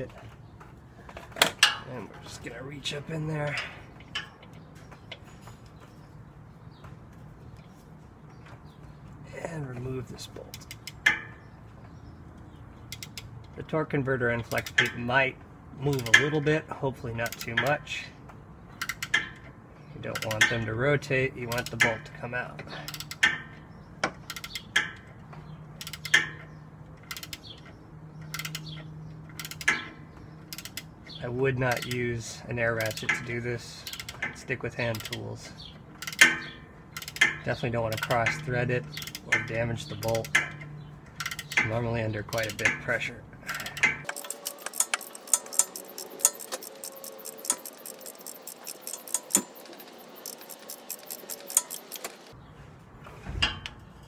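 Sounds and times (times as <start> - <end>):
ratcheting wrench clicking: 10.5 - 11.2, 12.9 - 13.3, 15.9 - 16.4, 18.8 - 19.5, 22.8 - 23.6, 24.2 - 25.1, 25.8 - 30.9, 32.8 - 35.3, 36.0 - 52.4.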